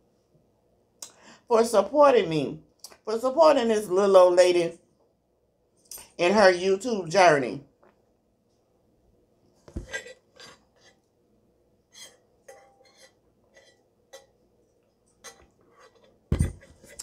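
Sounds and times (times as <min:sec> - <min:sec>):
metal mug clinking and knocking: 0:12.4 - 0:14.4, 0:15.1 - 0:17.0.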